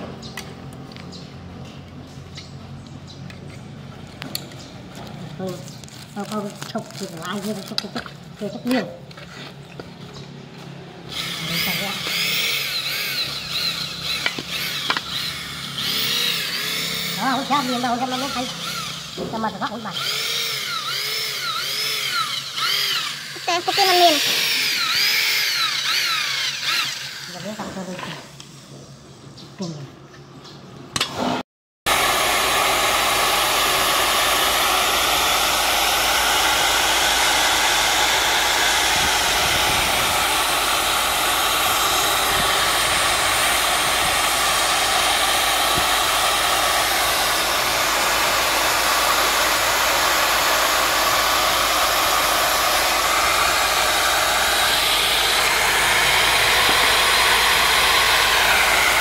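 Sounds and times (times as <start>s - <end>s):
drill press whirring: 11.0s - 27.6s, 31.0s - 59.0s.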